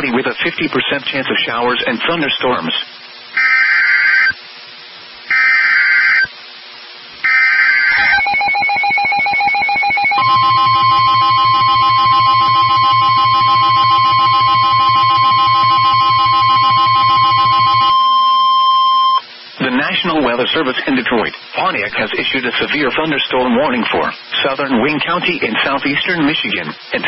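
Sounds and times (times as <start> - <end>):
screeching digital data bursts: 3.4 - 4.4, 5.3 - 6.3, 7.2 - 18.0
steady alarm tone: 3.4 - 4.4, 5.3 - 6.3, 7.2 - 19.2.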